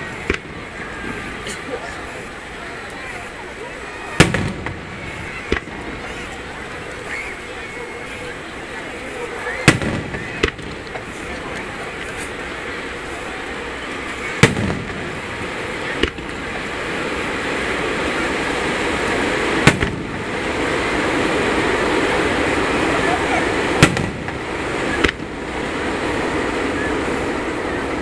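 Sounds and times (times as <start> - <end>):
firework shells bursting: 0.0 - 1.7, 4.2 - 7.0, 9.6 - 22.9, 23.5 - 27.5
crowd voices: 0.0 - 28.0.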